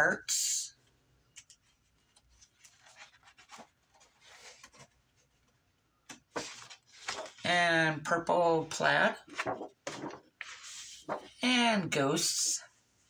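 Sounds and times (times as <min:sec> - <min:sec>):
paper pages rustling: 0:01.4 - 0:07.5, 0:09.1 - 0:11.4
paper clicks: 0:09.3 - 0:11.3.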